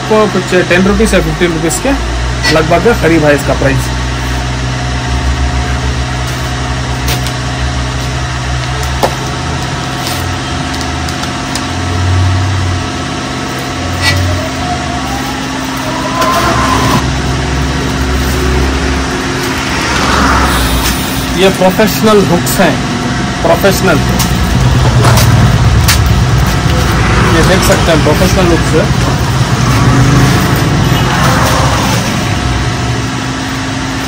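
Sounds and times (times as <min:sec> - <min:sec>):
rising whine: 0:00.0 - 0:34.0
low engine hum: 0:03.1 - 0:34.0.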